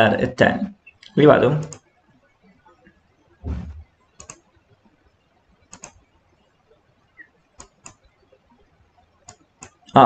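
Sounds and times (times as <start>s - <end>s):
computer mouse clicks: 1.0s - 1.9s, 4.2s - 4.5s, 5.7s - 6.1s, 7.6s - 8.1s, 9.2s - 10.0s
low thump: 3.4s - 3.9s.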